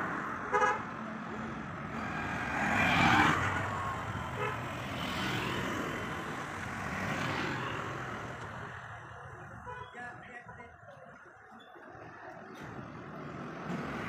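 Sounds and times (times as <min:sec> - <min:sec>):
motorbikes passing: 0:00.0 - 0:09.7.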